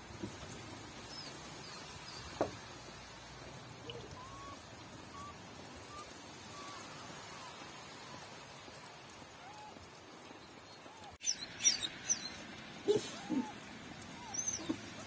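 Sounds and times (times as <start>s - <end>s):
puppy squeaking: 14.2s - 15.0s.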